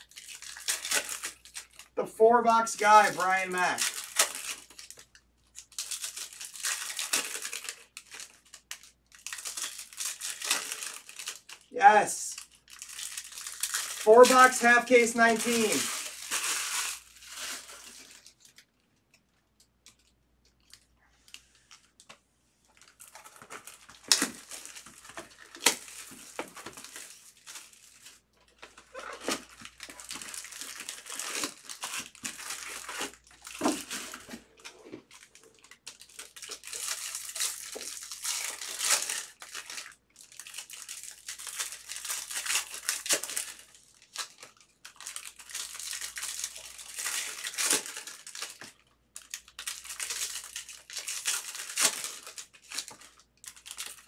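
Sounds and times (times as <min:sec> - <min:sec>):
foil wrappers crinkling and tearing: 0:00.0 - 0:18.7, 0:19.9 - 0:54.0.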